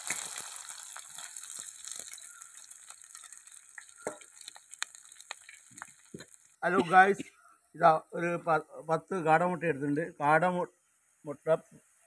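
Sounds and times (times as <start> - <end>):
small pops and crackles: 0.0 - 6.9
onions sizzling in oil: 0.0 - 7.0.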